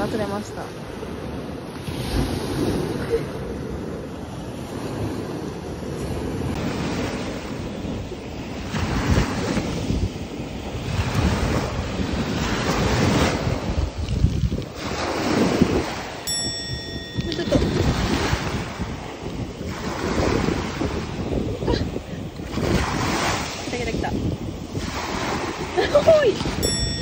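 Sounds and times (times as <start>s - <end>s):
surf washing up beach: 0.0s - 27.0s
wind buffeting microphone: 0.0s - 27.0s.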